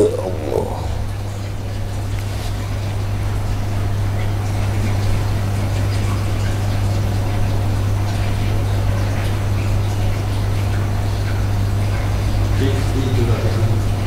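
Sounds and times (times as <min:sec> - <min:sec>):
steady deep hum: 0:00.0 - 0:01.4.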